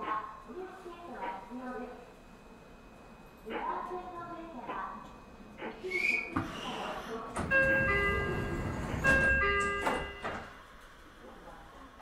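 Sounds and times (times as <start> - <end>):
high whistle-like tone: 5.8 - 6.4
train door-closing chime: 7.4 - 10.5.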